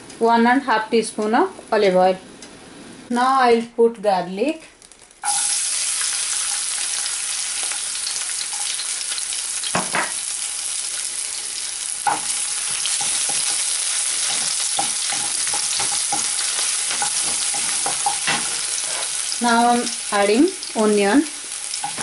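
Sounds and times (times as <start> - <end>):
garlic sizzling in oil: 4.8 - 22.0
wooden spoon scraping and tapping pan: 12.1 - 19.2.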